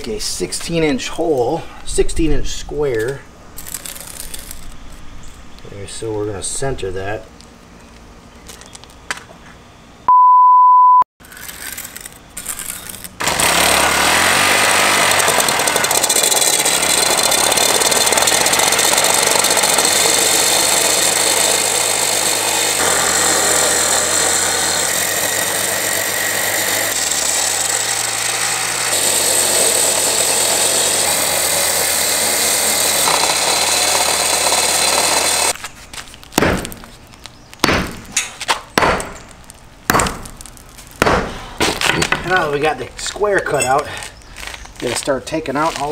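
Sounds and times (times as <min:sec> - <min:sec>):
steady beep: 0:10.1 - 0:11.0
concrete saw cutting concrete: 0:11.3 - 0:35.6
sharp knocks: 0:36.4 - 0:36.9, 0:37.6 - 0:39.3, 0:39.9 - 0:40.4, 0:41.0 - 0:42.3.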